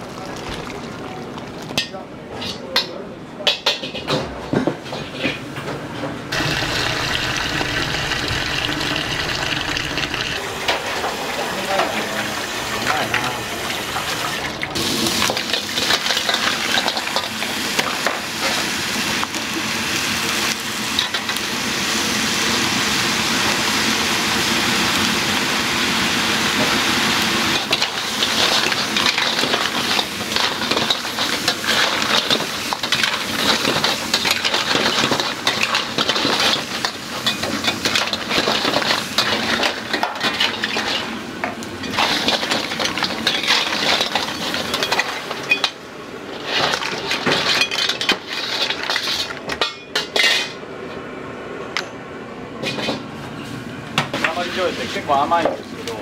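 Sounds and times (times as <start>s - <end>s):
food sizzling in a wok: 6.3s - 45.6s.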